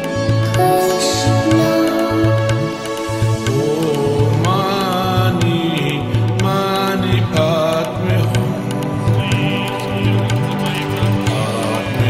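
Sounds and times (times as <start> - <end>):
slow melody of held tones: 0.0 - 4.6
low pulsing bass: 0.1 - 12.0.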